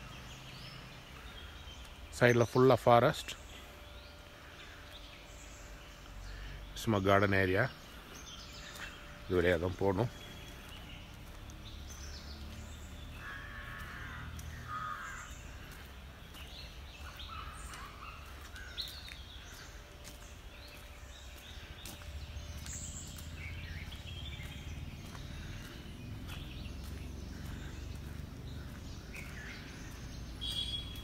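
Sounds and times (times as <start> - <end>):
birds calling in forest: 0.0 - 31.0
small birds chirping: 0.0 - 31.0
crow cawing: 13.1 - 15.9, 17.0 - 19.5, 25.0 - 30.9.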